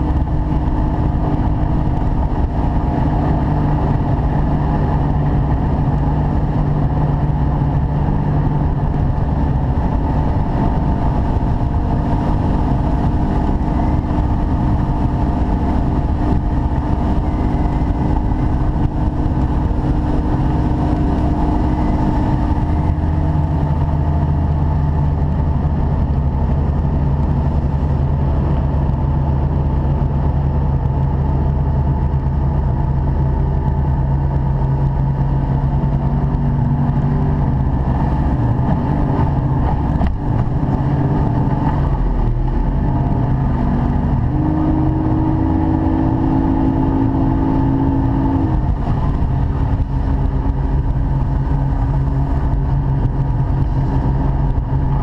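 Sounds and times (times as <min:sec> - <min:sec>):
outboard motor running hard: 0:00.0 - 0:55.0
water noise: 0:00.0 - 0:55.0
wind: 0:00.0 - 0:55.0.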